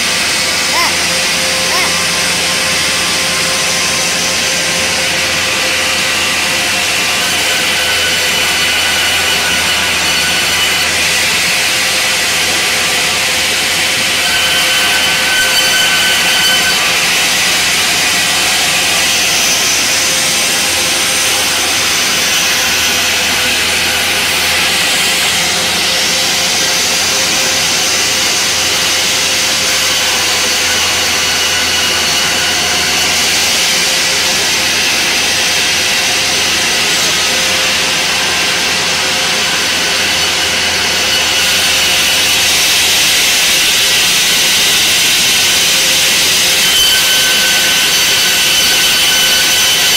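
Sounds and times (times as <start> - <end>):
band saw cutting wood: 0.0 - 49.9
whining saw tones: 0.0 - 49.9.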